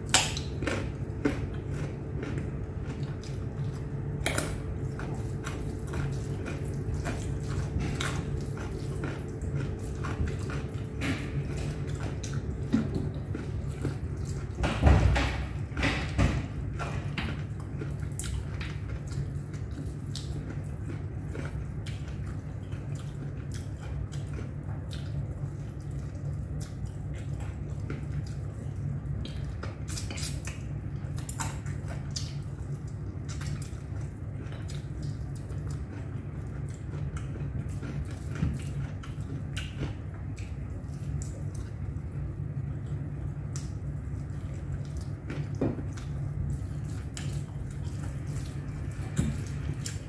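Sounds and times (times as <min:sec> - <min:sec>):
chewing: 0:00.0 - 0:50.0
steady low hum: 0:00.0 - 0:50.0.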